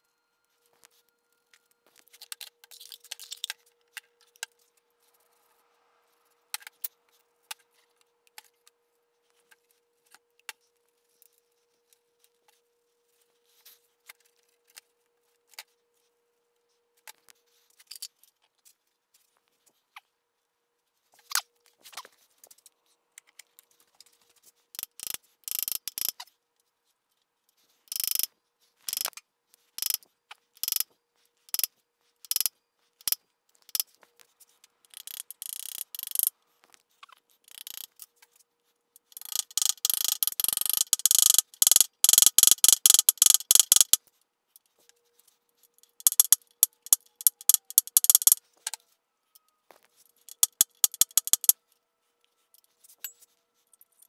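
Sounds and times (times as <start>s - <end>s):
ratchet clicking: 24.8s - 26.2s, 27.9s - 28.3s, 28.9s - 29.1s, 29.8s - 30.0s, 30.6s - 30.8s, 32.3s - 33.9s, 34.9s - 36.3s, 37.5s - 37.9s, 39.1s - 44.0s, 45.8s - 48.4s, 50.3s - 51.6s.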